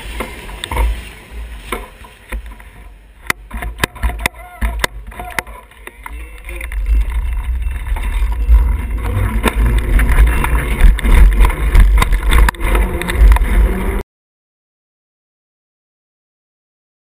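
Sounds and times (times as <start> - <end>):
muffled bicycle rolling rumble: 0.0 - 14.0
knocks and rattles: 3.2 - 14.0.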